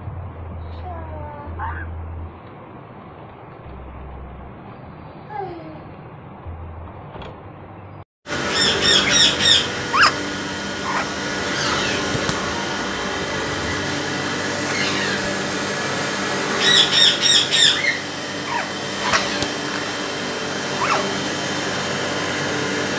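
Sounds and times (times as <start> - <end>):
steady hum: 5.9 - 22.9
parrot squawking chatter: 8.3 - 12.6, 13.8 - 15.6, 16.3 - 21.3
parrot whistles: 8.5 - 10.2, 10.8 - 12.1, 14.6 - 15.3, 16.6 - 19.5, 20.8 - 21.1.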